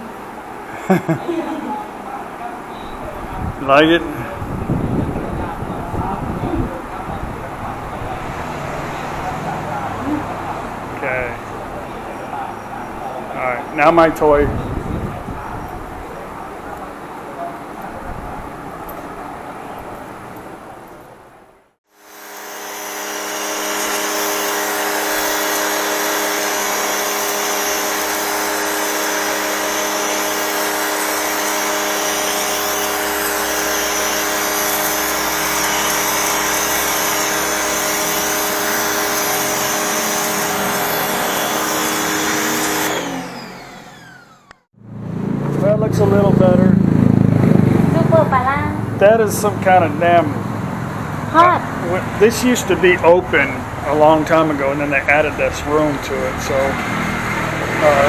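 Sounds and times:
pressure washer motor humming: 21.9 - 48.3, 49.0 - 58.0.

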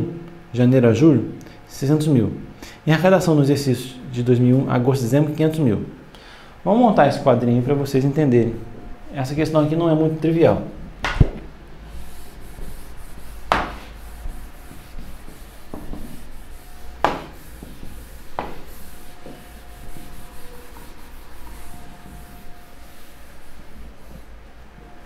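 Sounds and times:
sharp knocks: 11.0 - 11.5, 13.5 - 13.8, 17.0 - 17.8, 18.4 - 19.4
eraser rubbing on whiteboard: 11.9 - 24.4.

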